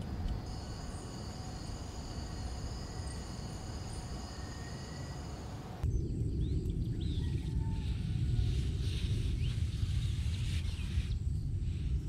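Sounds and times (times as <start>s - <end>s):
crickets trilling: 0.0s - 7.5s
low rumble: 5.8s - 12.0s.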